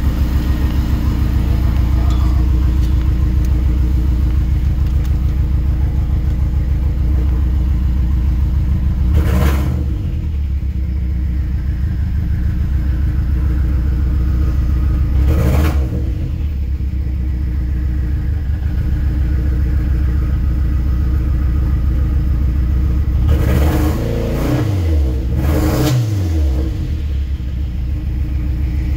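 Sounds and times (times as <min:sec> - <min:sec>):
car engine idling: 0:00.0 - 0:28.9
engine revving: 0:08.9 - 0:10.5, 0:15.0 - 0:16.6, 0:23.1 - 0:27.5.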